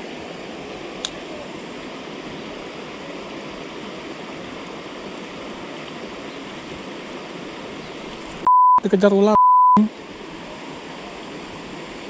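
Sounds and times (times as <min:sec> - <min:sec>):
stream flowing over rocks: 0:00.0 - 0:08.5.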